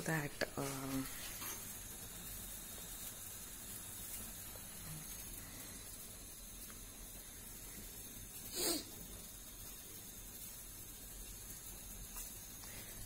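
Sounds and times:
gas stove hissing: 0:00.0 - 0:13.0
sharp puff of breath: 0:08.5 - 0:08.9.

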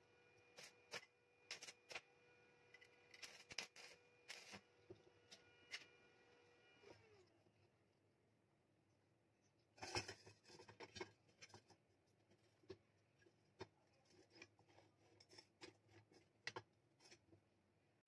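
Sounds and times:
metal clicks and scrapes: 0:00.6 - 0:02.0, 0:02.7 - 0:04.6, 0:09.8 - 0:12.8, 0:13.5 - 0:17.3.

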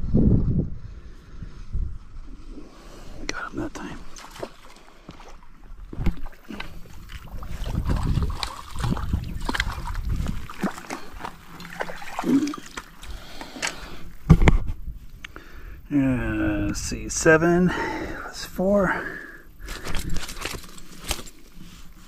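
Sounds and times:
water splashing: 0:04.0 - 0:13.9.

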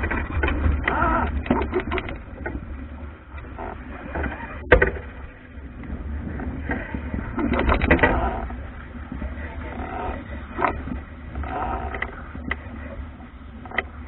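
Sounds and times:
water splashing along hull: 0:00.0 - 0:14.0
wind buffeting microphone: 0:00.0 - 0:14.0.

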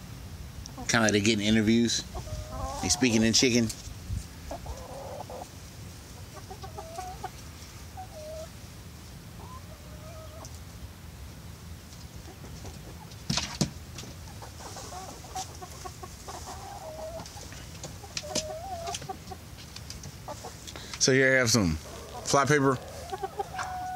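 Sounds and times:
hens clucking: 0:00.6 - 0:23.9.

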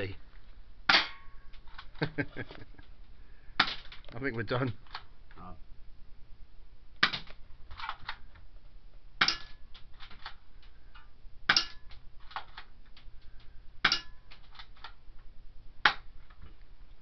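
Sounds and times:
bb gun cracks: 0:03.6 - 0:04.0, 0:07.0 - 0:08.2, 0:09.2 - 0:10.4, 0:15.8 - 0:16.1.

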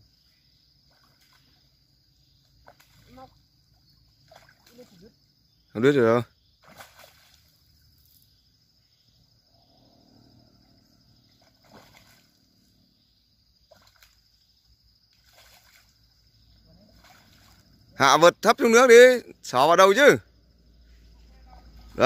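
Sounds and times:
fish splashing in water: 0:04.1 - 0:05.0, 0:06.6 - 0:07.7, 0:11.4 - 0:12.4, 0:13.6 - 0:14.4, 0:15.2 - 0:16.1, 0:16.9 - 0:17.7.

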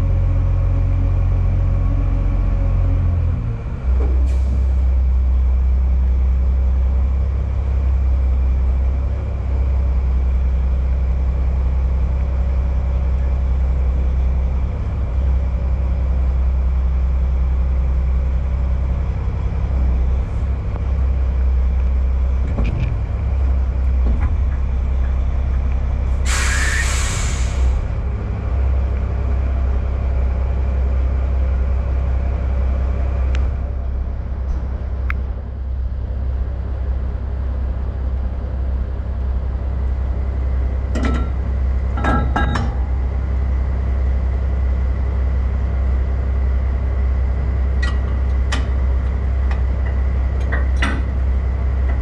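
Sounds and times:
diesel engine rumbling: 0:00.0 - 0:52.0
air brakes hiss: 0:26.2 - 0:27.9.

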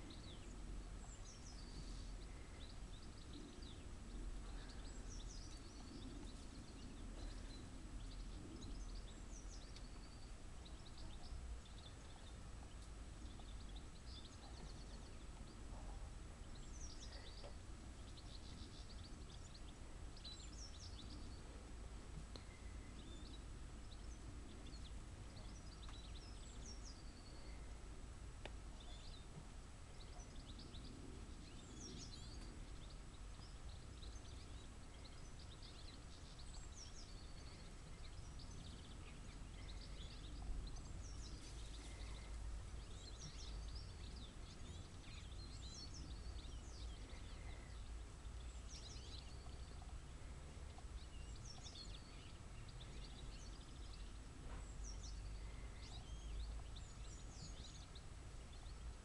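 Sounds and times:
low background rumble: 0:00.0 - 0:59.0
small birds chirping: 0:00.0 - 0:59.0.

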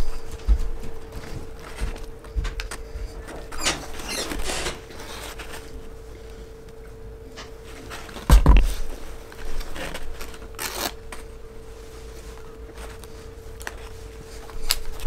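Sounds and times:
steady low hum: 0:00.0 - 0:15.0
paper wrapper rustling: 0:07.7 - 0:11.3
plastic bottle thump on wooden table: 0:08.3 - 0:08.7.

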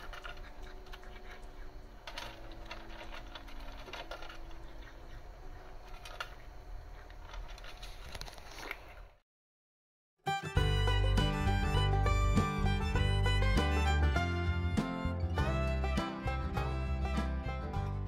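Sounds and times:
cat crunching dry food: 0:00.0 - 0:08.8
soft background music: 0:10.3 - 0:18.0.

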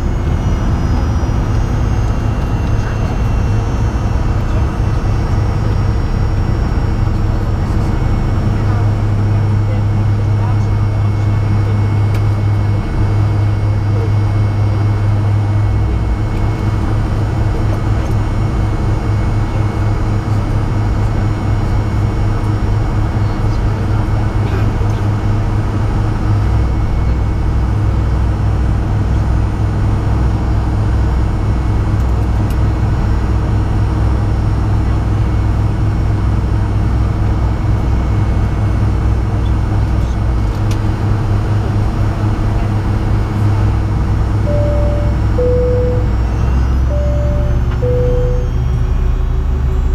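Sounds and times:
whining tones: 0:00.0 - 0:19.7, 0:42.2 - 0:49.9
jet engine drone: 0:00.0 - 0:49.9.

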